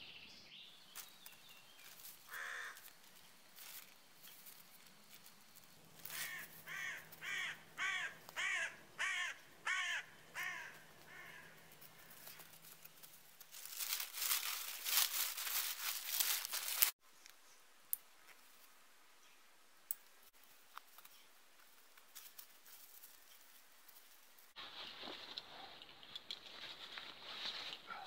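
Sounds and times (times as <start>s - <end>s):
crinkly rustling of gear: 1.0s - 7.2s, 10.7s - 17.0s, 20.4s - 28.0s
crow cawing: 2.3s - 2.9s, 6.0s - 12.5s.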